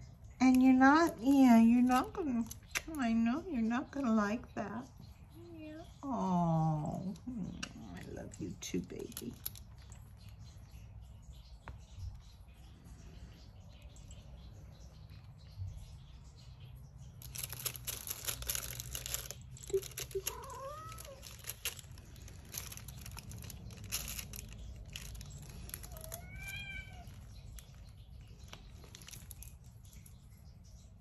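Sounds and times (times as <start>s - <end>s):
cat meowing: 20.1s - 21.3s, 25.8s - 27.4s.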